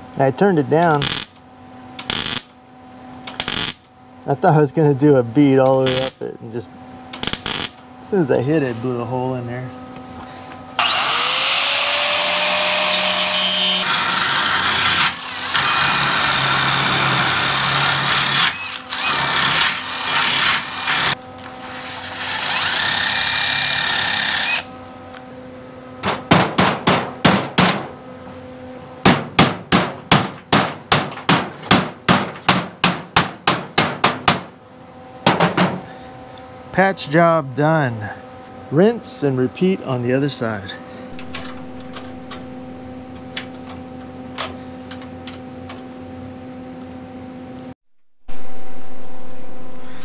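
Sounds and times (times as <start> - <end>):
angle grinder grinding steel: 10.8 - 21.2
hammer striking sheet steel: 29.0 - 34.5.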